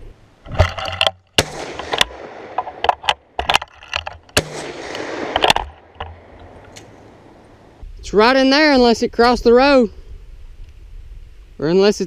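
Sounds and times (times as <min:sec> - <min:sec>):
gun handling clicks and knocks: 0:00.4 - 0:07.6
shotgun firing: 0:01.3 - 0:03.4, 0:04.3 - 0:07.4.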